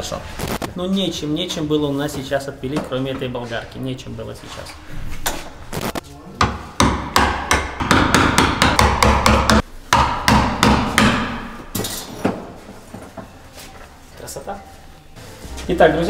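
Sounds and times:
hammer striking wooden boards: 0:06.4 - 0:12.4.

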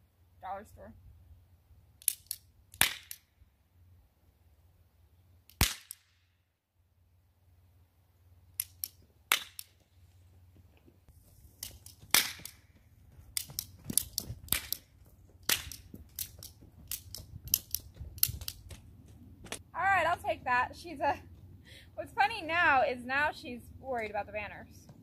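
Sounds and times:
cap gun loud crack: 0:02.0 - 0:03.2, 0:05.5 - 0:06.2, 0:08.6 - 0:09.7, 0:12.1 - 0:12.6, 0:15.4 - 0:18.6
cap gun clicks and pops: 0:02.0 - 0:03.3, 0:05.5 - 0:06.2, 0:08.6 - 0:09.8, 0:11.6 - 0:12.6, 0:13.4 - 0:18.8.

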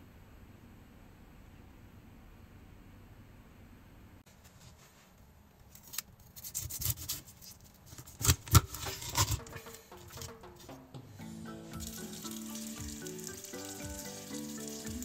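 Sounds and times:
knife scraping fish: 0:06.3 - 0:07.5.

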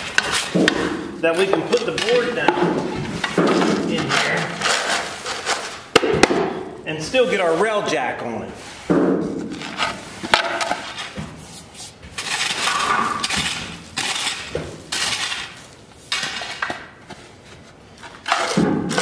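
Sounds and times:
rake scraping through gravel: 0:10.8 - 0:16.6.

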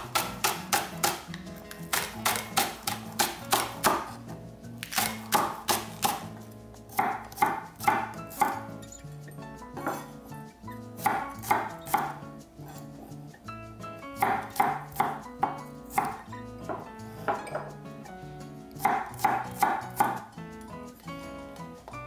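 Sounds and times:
knife chopping on wooden board: 0:00.0 - 0:04.2, 0:04.8 - 0:08.7, 0:09.8 - 0:10.1, 0:11.0 - 0:12.2, 0:14.2 - 0:17.7, 0:18.8 - 0:20.3.

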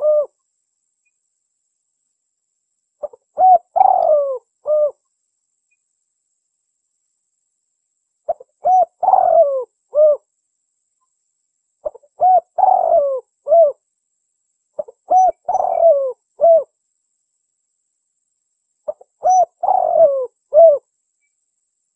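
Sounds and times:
dove cooing: 0:00.0 - 0:00.4, 0:03.0 - 0:05.0, 0:08.3 - 0:10.3, 0:11.8 - 0:13.8, 0:14.8 - 0:16.7, 0:18.9 - 0:20.9.

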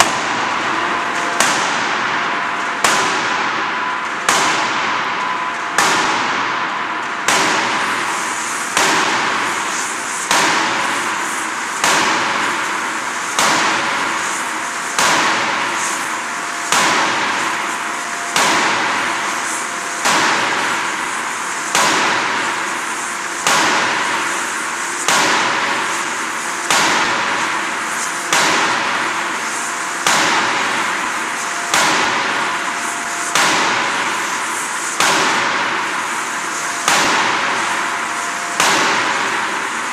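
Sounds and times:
steady hum: 0:00.0 - 0:39.9
forging hammer blows: 0:25.0 - 0:39.9.

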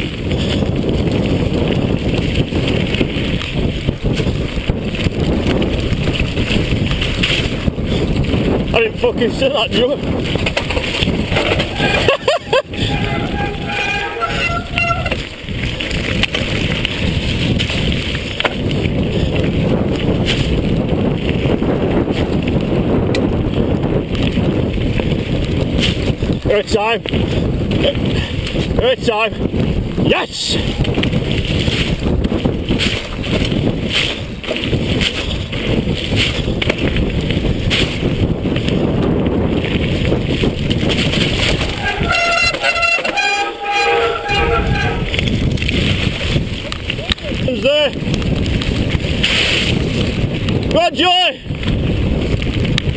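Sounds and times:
bike knocks and rattles: 0:00.0 - 0:09.4, 0:10.0 - 0:12.2, 0:14.8 - 0:26.4, 0:30.8 - 0:41.8
tyres on wet gravel: 0:00.0 - 0:52.9
wind buffeting microphone: 0:00.0 - 0:52.9
wet brakes squealing: 0:11.4 - 0:15.3, 0:41.5 - 0:45.1.

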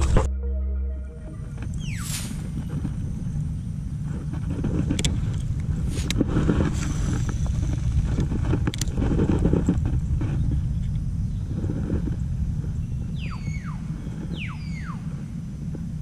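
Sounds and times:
microphone handling noise: 0:00.0 - 0:00.4, 0:01.0 - 0:16.0
wind rumble: 0:00.0 - 0:16.0.

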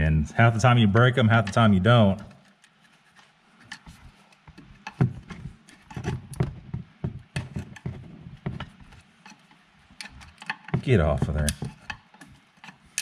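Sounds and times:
screwdriver prying at plastic: 0:03.7 - 0:09.0, 0:10.0 - 0:12.8.

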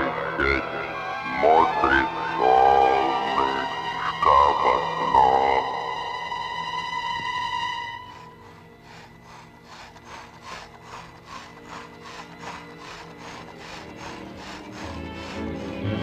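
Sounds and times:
low steady drone: 0:00.0 - 0:16.0
music: 0:00.0 - 0:16.0
rhythmic scraping strokes: 0:07.2 - 0:16.0.

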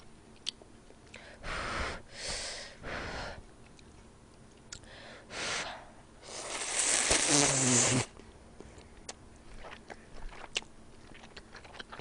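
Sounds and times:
person slurping noodles: 0:06.3 - 0:08.1.

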